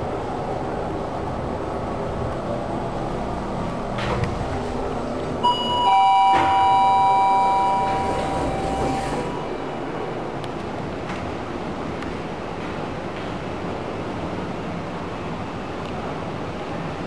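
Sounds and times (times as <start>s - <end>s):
elevator car hum: 0.0s - 17.0s
elevator doors knock: 5.4s - 10.7s
elevator arrival chime: 5.4s - 11.0s.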